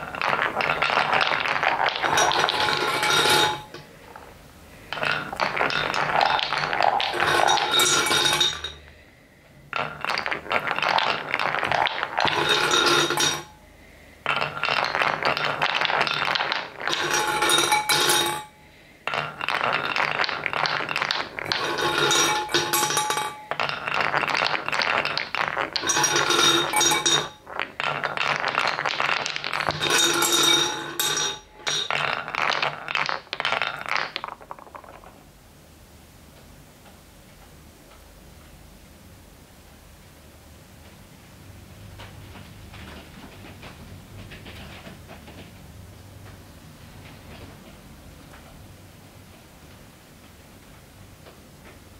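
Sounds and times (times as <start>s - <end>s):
wooden balls rattling on track: 0.0s - 8.9s, 9.7s - 13.6s, 14.2s - 35.3s.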